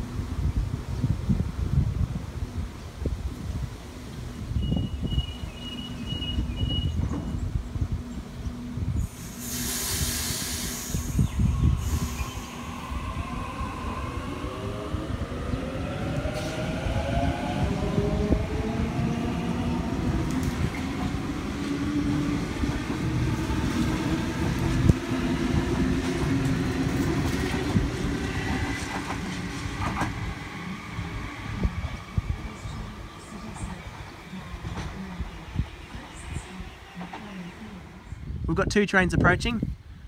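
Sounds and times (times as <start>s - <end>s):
air hiss: 9.0s - 12.9s.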